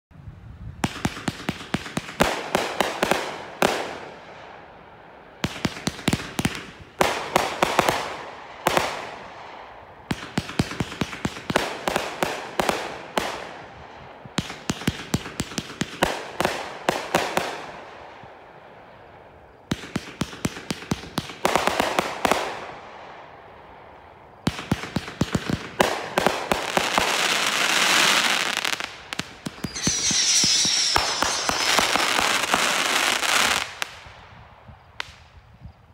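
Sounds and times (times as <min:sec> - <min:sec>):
firework sharp pops and crackle: 0:00.8 - 0:04.3, 0:05.4 - 0:35.6
firework dense hiss: 0:25.7 - 0:34.4.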